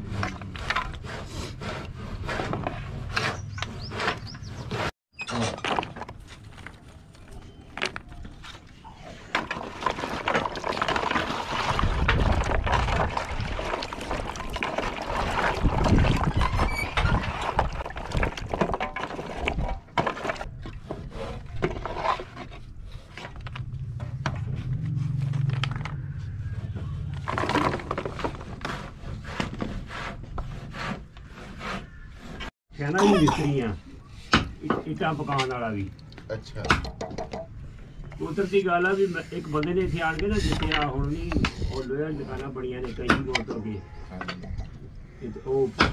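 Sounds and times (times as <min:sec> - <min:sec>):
wooden blocks clattering: 0:05.4 - 0:16.6, 0:17.2 - 0:23.7, 0:27.0 - 0:28.9
scoop scraping: 0:08.6 - 0:23.4
liquid sloshing: 0:09.2 - 0:20.5.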